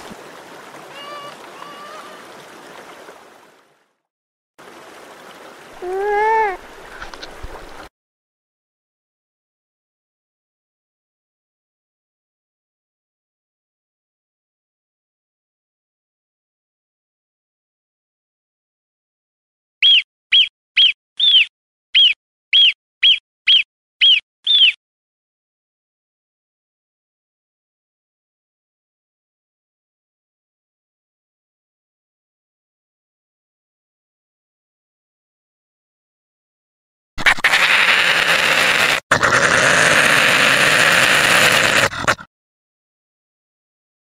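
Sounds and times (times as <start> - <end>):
water trickling and splashing: 0.0 - 7.9
ground squirrel alarm calls: 19.8 - 24.8.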